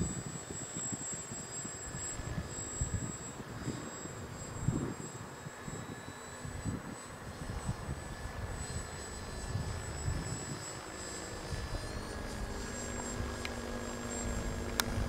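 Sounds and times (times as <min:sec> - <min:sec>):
model aircraft motor whine: 0:00.0 - 0:15.0
wind on microphone: 0:00.0 - 0:15.0.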